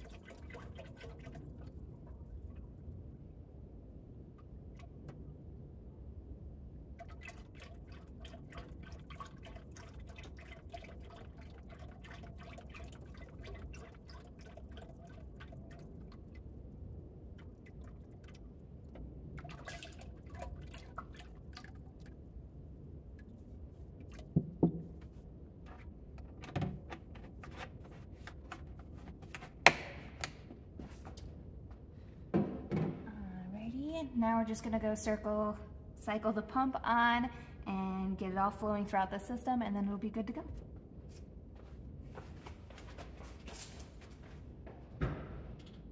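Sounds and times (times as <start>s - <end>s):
coolant pouring and splashing: 0.0s - 2.8s, 7.0s - 25.9s.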